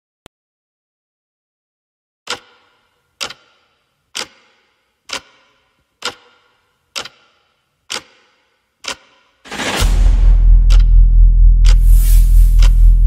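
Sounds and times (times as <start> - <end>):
clock ticking: 2.3 - 9.4, 10.3 - 13.0.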